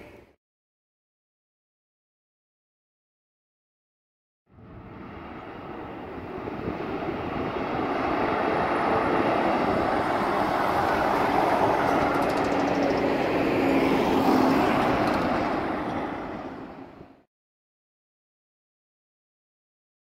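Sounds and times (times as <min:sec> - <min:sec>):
garbage trucks driving past: 0:04.8 - 0:17.3.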